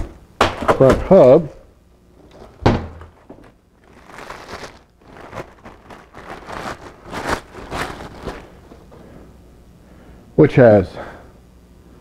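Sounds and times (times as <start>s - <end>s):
plastic packaging crinkling: 2.2s - 8.9s.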